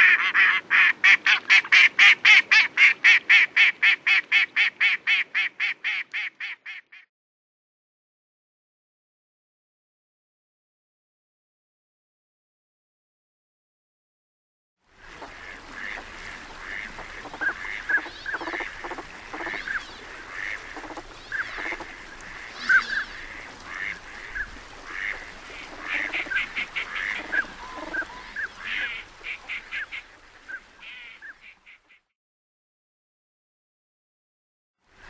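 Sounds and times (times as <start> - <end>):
duck calls: 0.0 - 7.1, 16.6 - 30.1.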